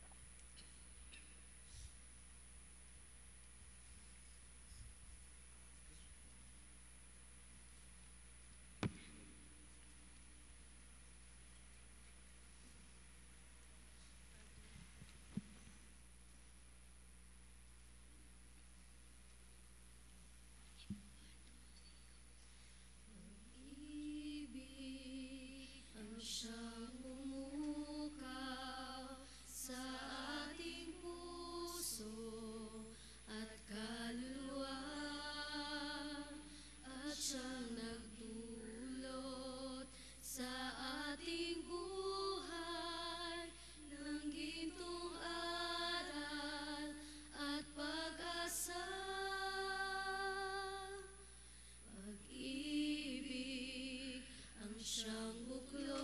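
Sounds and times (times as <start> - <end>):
hymn singing: 23.1 - 56.0.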